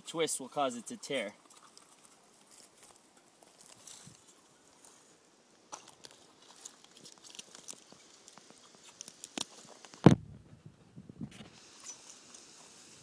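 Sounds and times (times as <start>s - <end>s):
bike tire crackling and rustling: 1.1s - 5.1s, 5.7s - 10.3s.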